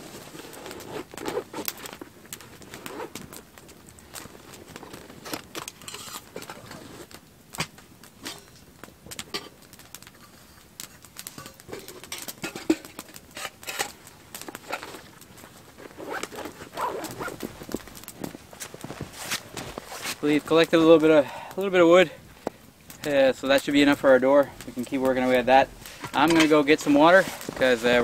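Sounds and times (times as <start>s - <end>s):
footsteps crunching in snow: 15.6s - 20.5s, 26.7s - 28.0s.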